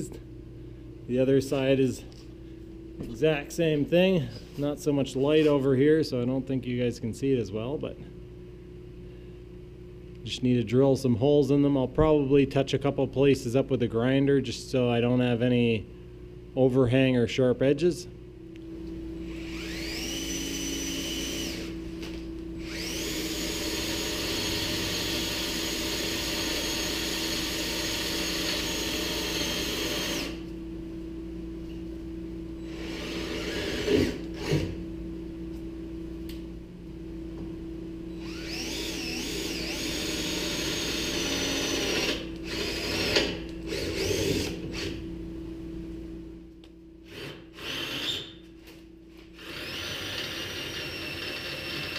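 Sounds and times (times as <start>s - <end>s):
cordless drill boring through steel: 19.3s - 21.7s, 22.6s - 30.4s, 38.2s - 44.9s, 47.1s - 48.3s, 49.4s - 51.9s.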